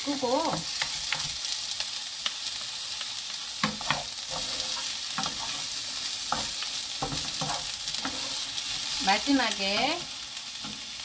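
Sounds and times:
cucumber sizzling in pan: 0.0s - 11.0s
wooden spatulas scraping pan: 3.6s - 8.9s.

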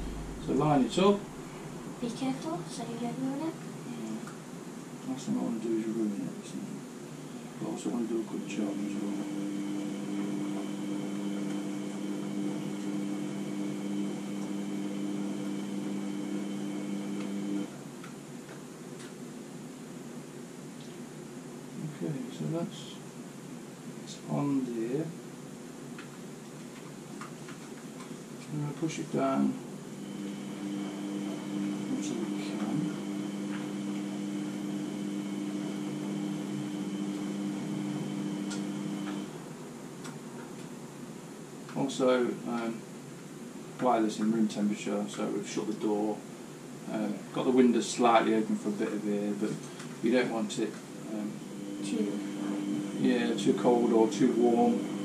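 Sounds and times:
electrical appliance hum: 0.0s - 55.0s
electric appliance motor humming: 8.3s - 17.7s, 29.9s - 39.4s, 50.7s - 55.0s.

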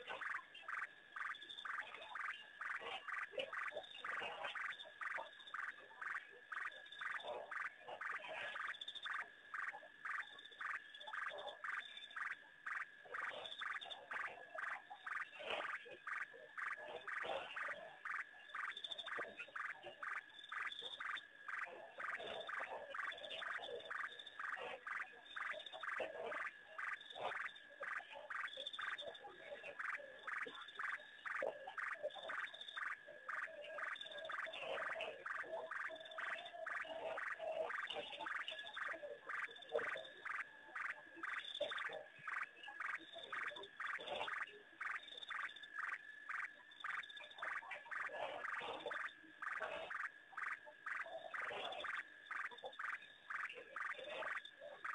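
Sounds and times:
frogs calling: 0.0s - 54.9s
frogs croaking: 0.0s - 54.9s.

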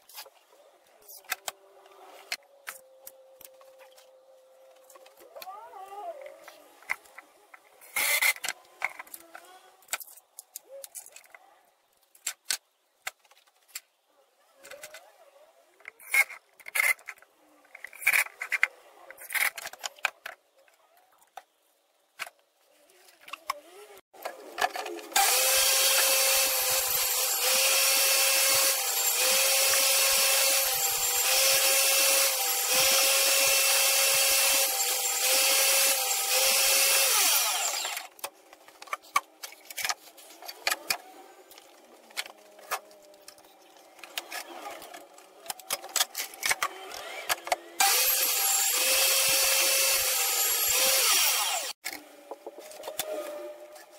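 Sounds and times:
table saw cutting wood: 25.1s - 38.1s, 46.5s - 51.8s.

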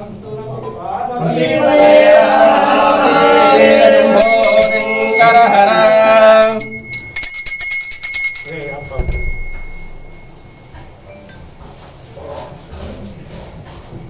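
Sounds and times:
chanting in long held notes: 0.0s - 6.9s
hand bell rung rapidly: 4.2s - 10.6s.

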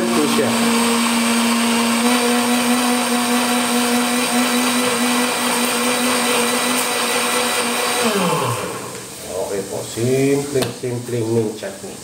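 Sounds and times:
blender running: 0.0s - 9.2s.

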